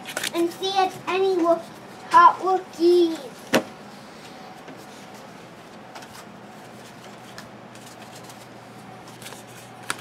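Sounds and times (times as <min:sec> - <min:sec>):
steady low hum: 0:00.0 - 0:10.0
cards clicking and snapping: 0:09.2 - 0:10.0.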